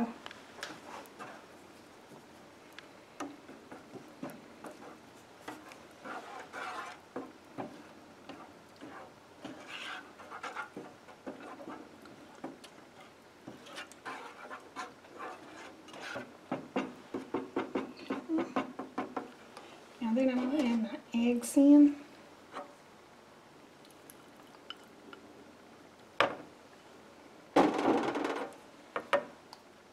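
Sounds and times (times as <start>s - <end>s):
spatula scraping a metal saucepan: 4.6s - 7.0s, 8.3s - 11.8s, 13.0s - 16.9s.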